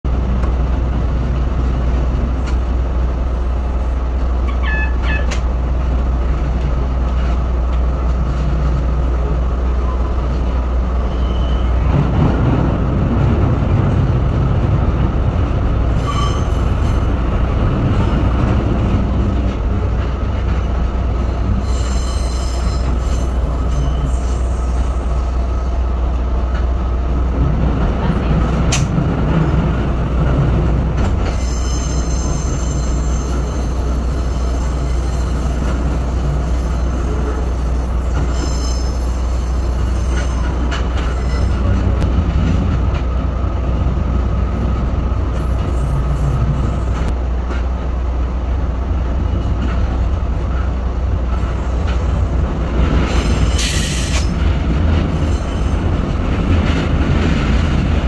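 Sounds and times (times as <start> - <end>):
train rumbling on track: 0.0 - 58.0.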